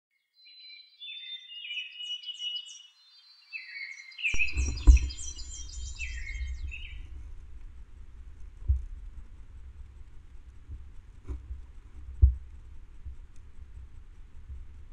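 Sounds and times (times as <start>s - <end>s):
songbirds chirping: 0.1s - 14.9s
low rumbling noise: 4.4s - 14.9s.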